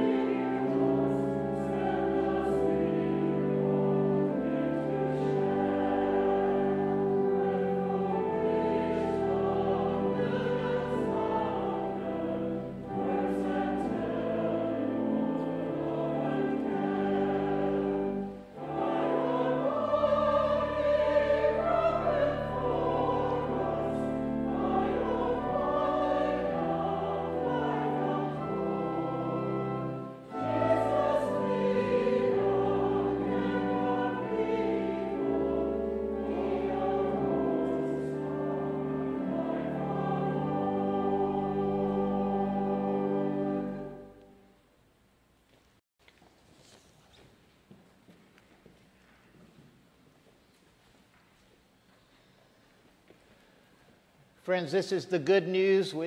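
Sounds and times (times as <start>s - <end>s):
choir singing: 0.0s - 44.5s
instrumental accompaniment: 0.0s - 44.5s.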